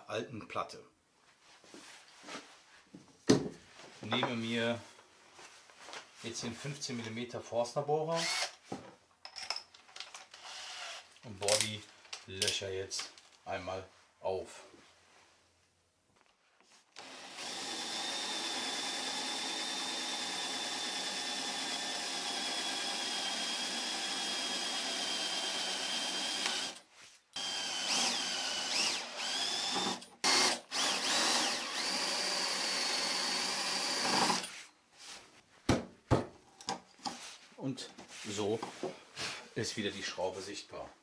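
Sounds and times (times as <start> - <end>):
cordless drill whining: 8.2 - 8.6, 10.3 - 11.1, 16.9 - 34.6.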